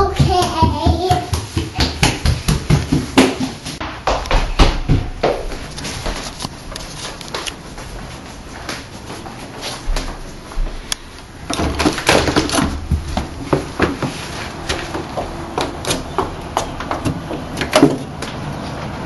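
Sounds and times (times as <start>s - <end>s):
footsteps on wooden deck: 3.8s - 18.4s.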